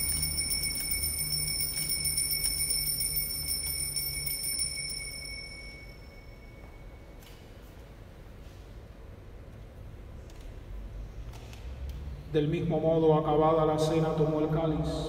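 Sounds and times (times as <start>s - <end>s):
altar bells ringing: 0.0s - 7.2s
low hum: 0.0s - 7.2s.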